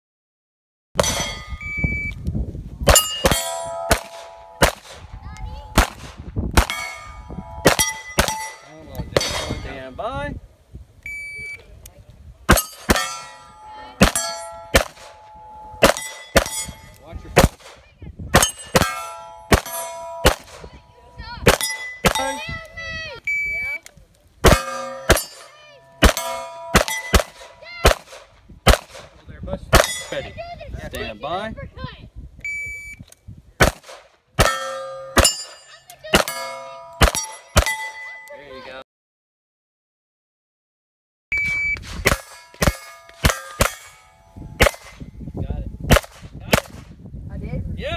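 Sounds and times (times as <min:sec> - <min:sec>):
steel plates clanging: 0:01.0 - 0:01.6, 0:02.9 - 0:05.8, 0:06.6 - 0:10.0, 0:12.5 - 0:17.1, 0:18.4 - 0:22.5, 0:24.4 - 0:27.7, 0:29.8 - 0:30.4, 0:34.4 - 0:38.3, 0:42.0 - 0:45.0
shot timer beep: 0:01.3 - 0:02.2, 0:11.0 - 0:11.6, 0:23.2 - 0:23.8, 0:32.4 - 0:33.0, 0:41.3 - 0:41.8
pistol shots: 0:02.9 - 0:05.0, 0:05.8 - 0:07.0, 0:07.6 - 0:08.6, 0:14.0 - 0:15.2, 0:15.8 - 0:16.7, 0:17.4 - 0:17.8, 0:18.4 - 0:20.7, 0:21.4 - 0:22.3, 0:26.0 - 0:30.1, 0:33.6 - 0:35.5, 0:37.0 - 0:37.8, 0:42.0 - 0:43.9, 0:45.9 - 0:46.8.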